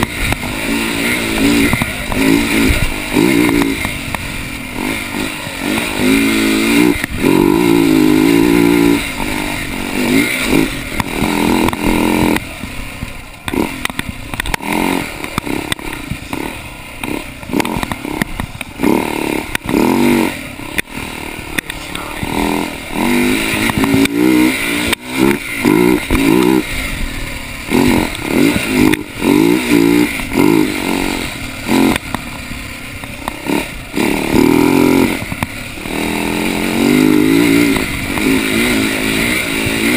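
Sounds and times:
bike knocks and rattles: 0.0 - 20.1, 23.0 - 26.7
dirt bike engine revving: 0.0 - 39.9.

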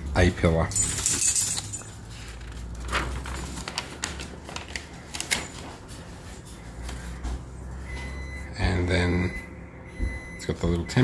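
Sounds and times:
paper rustling and crackling: 0.8 - 7.5.

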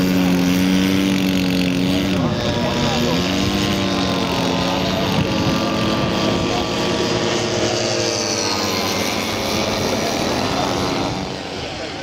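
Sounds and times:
model aircraft engine running: 0.0 - 12.0.

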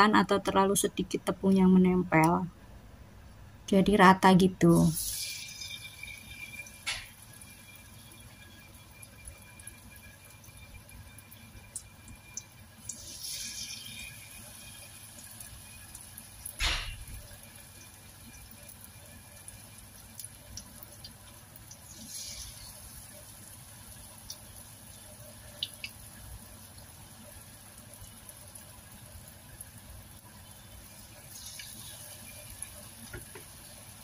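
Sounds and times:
tofu sizzling in hot oil: 4.9 - 34.0
oil crackling and popping: 5.0 - 8.0, 9.0 - 34.0.

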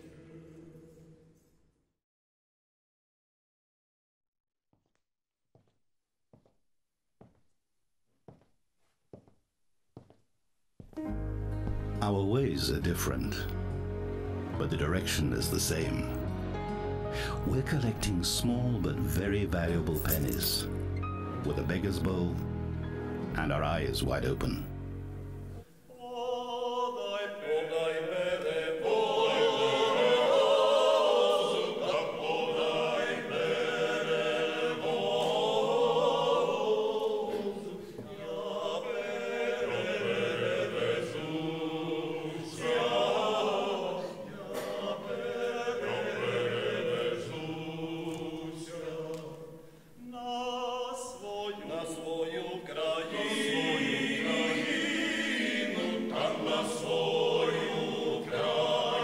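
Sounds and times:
male vocal group singing: 25.9 - 59.0.

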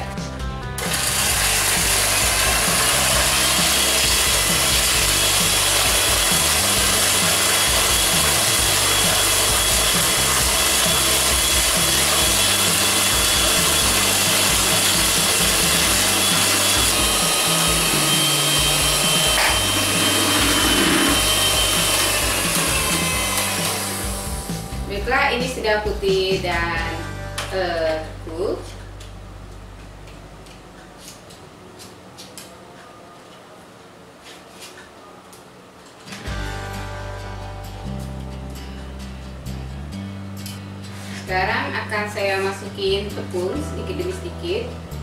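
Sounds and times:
electric hand mixer whisking: 0.8 - 24.9.

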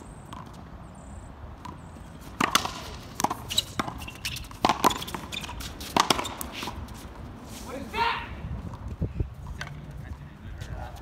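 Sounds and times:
racquetball hits and wall smacks: 2.4 - 6.5.

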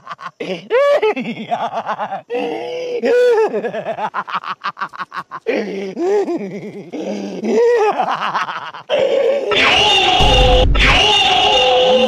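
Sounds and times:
person laughing: 0.0 - 9.6.

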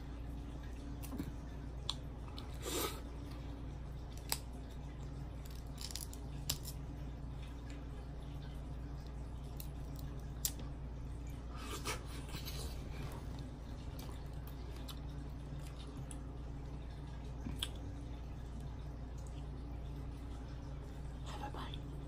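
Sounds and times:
steady low hum: 0.0 - 22.0
crab shells cracking: 5.4 - 6.8.

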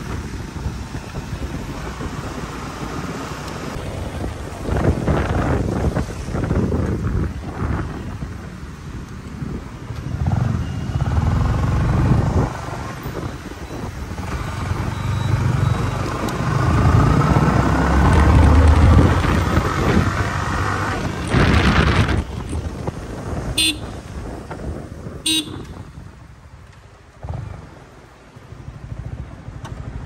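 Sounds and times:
motorcycle engine revving: 10.1 - 13.0, 14.1 - 22.7.

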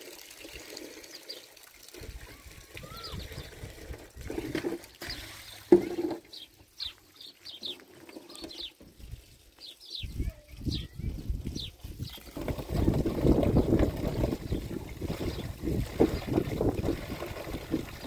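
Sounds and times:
small birds chirping: 2.3 - 3.6, 5.0 - 16.6.

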